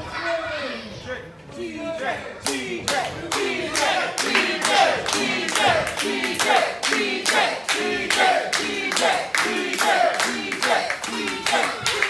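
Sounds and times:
crowd chanting in unison: 1.6 - 12.0
crowd clapping in rhythm: 2.5 - 12.0.

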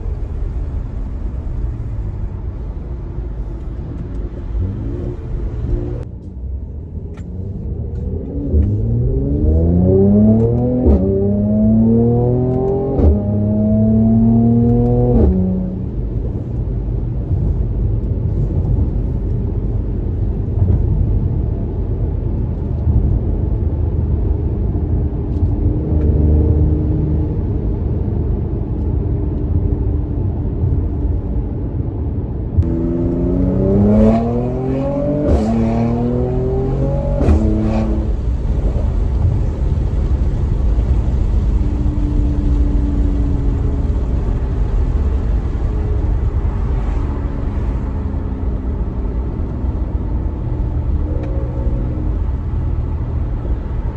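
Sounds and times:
road noise: 0.0 - 53.9
car engine accelerating: 3.2 - 21.3, 32.5 - 53.9.

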